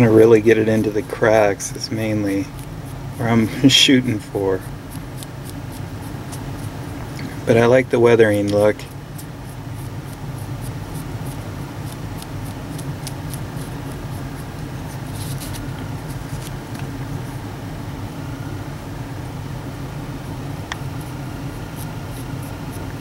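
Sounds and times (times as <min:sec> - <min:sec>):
paintbrush ticks and scratches: 0:00.0 - 0:07.0, 0:08.3 - 0:16.9, 0:20.7 - 0:23.0
low background hum: 0:00.0 - 0:23.0.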